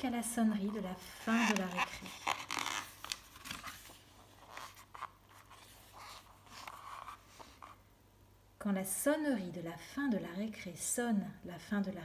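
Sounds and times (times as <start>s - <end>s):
book page turning: 0.7s - 7.8s
hand sliding over paper: 3.3s - 7.8s.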